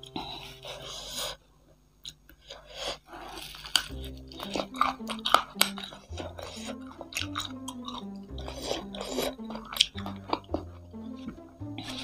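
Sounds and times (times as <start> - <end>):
close-up chewing: 2.0 - 12.0
backing tune with plodding bass: 3.9 - 12.0.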